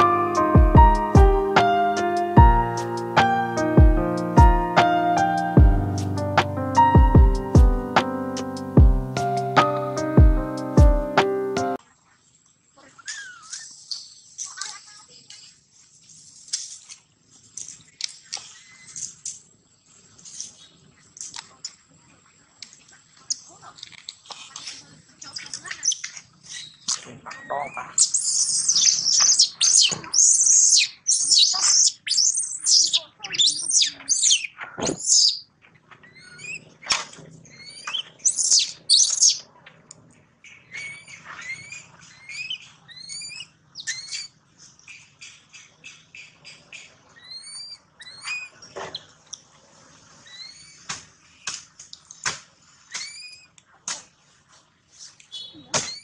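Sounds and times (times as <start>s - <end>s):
baby monkey crying: 27.3s - 35.4s, 40.8s - 44.3s, 47.2s - 48.5s.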